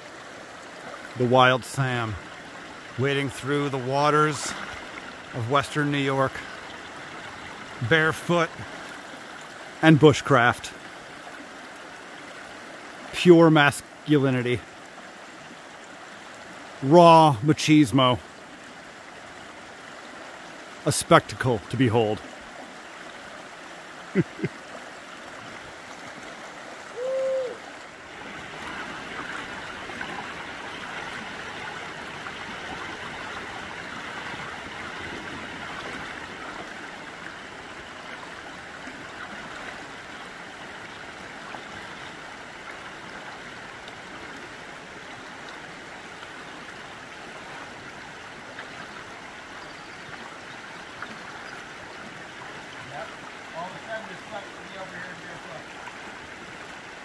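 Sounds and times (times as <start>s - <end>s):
river rushing over bedrock: 0.0s - 57.0s
hoot-like tone: 26.9s - 27.6s.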